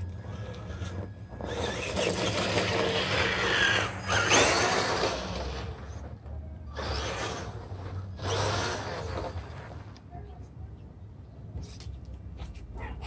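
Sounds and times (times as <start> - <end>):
toy truck electric motor whining: 0.0 - 10.0.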